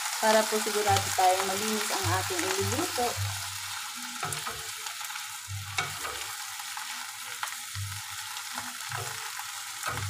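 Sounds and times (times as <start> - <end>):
vegetables sizzling in a pan: 0.0 - 10.0
spatula scraping a pan: 2.2 - 10.0.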